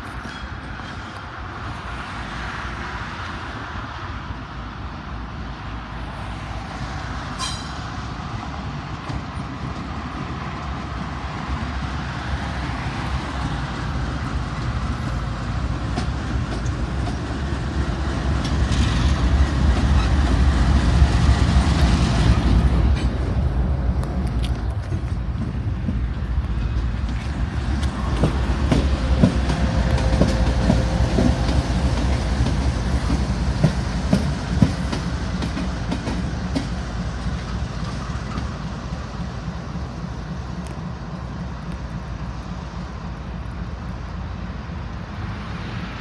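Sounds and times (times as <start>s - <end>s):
diesel locomotive engine rumble: 0.0s - 46.0s.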